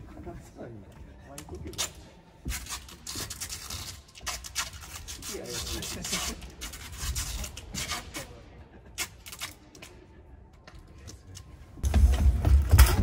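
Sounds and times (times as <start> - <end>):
rubbing and rasping scrapes: 1.8 - 8.4.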